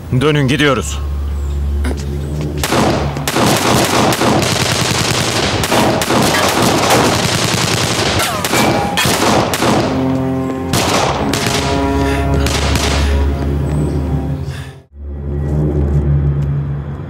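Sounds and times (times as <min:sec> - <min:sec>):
music: 0:09.3 - 0:16.4.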